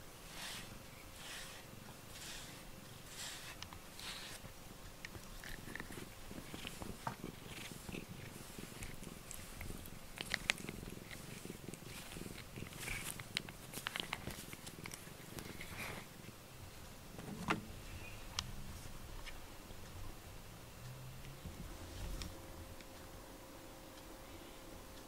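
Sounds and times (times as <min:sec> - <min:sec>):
cat purring: 0:00.0 - 0:17.1
brush clicks and rustles: 0:00.0 - 0:17.4.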